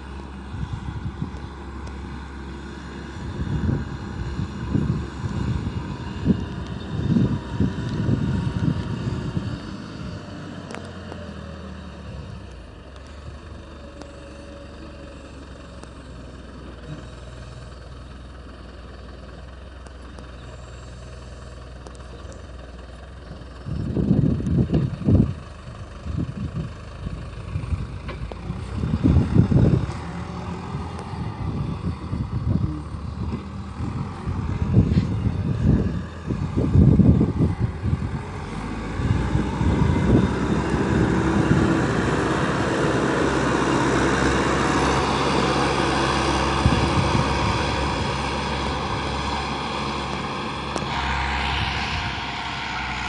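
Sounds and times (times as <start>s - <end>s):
diesel engine running: 0.0s - 53.0s
low irregular rumbling: 12.0s - 53.0s.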